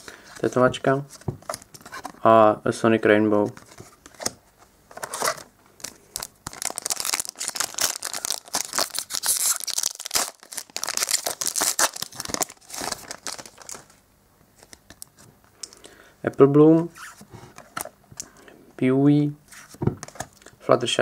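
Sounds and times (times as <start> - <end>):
foil wrapper tearing and crinkling: 5.0 - 14.0.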